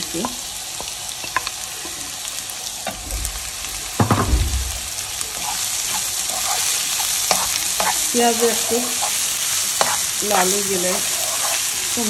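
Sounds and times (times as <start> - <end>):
onions frying in hot oil: 0.0 - 12.0
spoon stirring and scraping pan: 0.1 - 4.1, 4.7 - 12.0
loud knock: 4.0 - 4.9.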